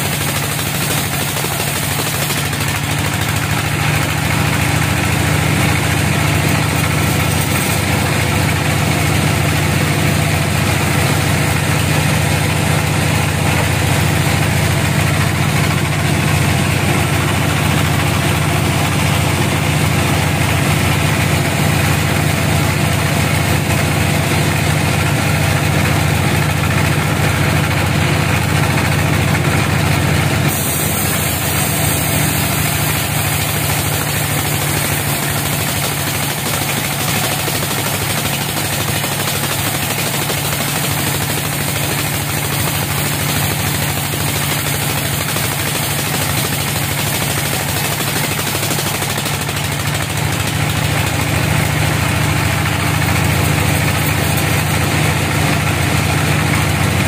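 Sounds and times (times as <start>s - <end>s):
saw cutting log hiss: 0.0s - 19.6s, 30.5s - 51.9s.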